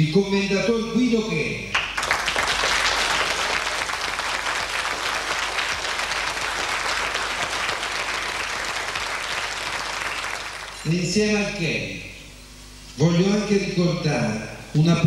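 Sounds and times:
audience applauding: 1.8s - 10.9s.

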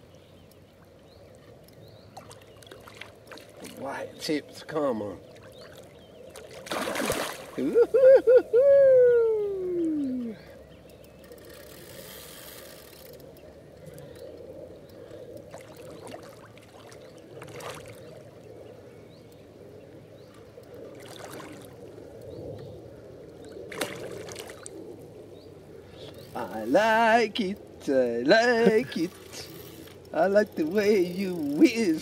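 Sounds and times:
fish splashing at water surface: 6.4s - 7.6s, 23.7s - 24.7s.

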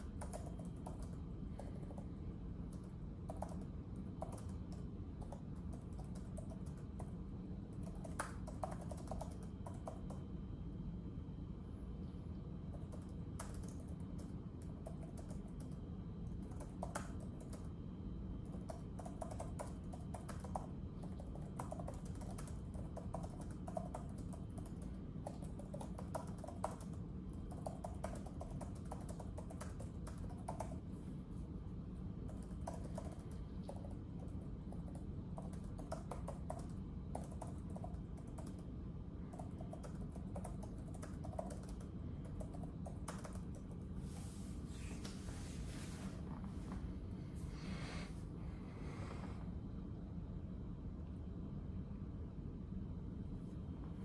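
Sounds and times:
typing on a keyboard: 0.0s - 10.3s, 12.7s - 17.8s, 18.4s - 30.8s, 32.2s - 43.8s
low background hum: 0.0s - 54.0s.

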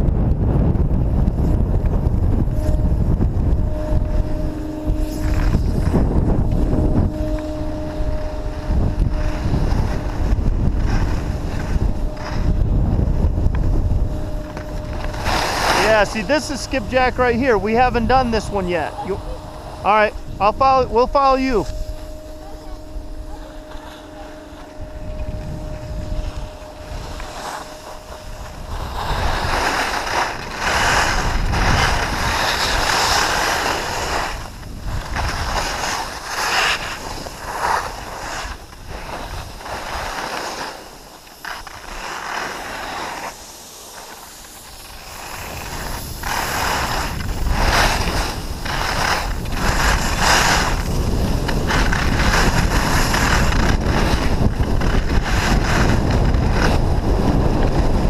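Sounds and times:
wind buffeting microphone: 0.0s - 40.3s, 44.3s - 58.0s
skis scraping on snow: 0.5s - 58.0s.

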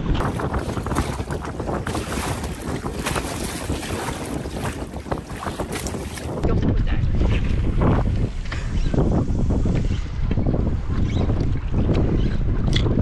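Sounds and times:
waves splashing against canoe: 0.0s - 6.5s
wind on microphone: 0.0s - 13.0s.

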